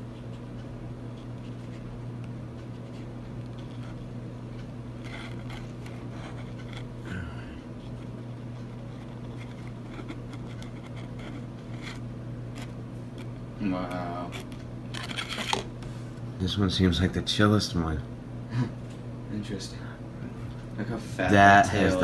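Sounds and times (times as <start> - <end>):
scratching on plastic cup: 5.0 - 7.0, 7.8 - 12.8.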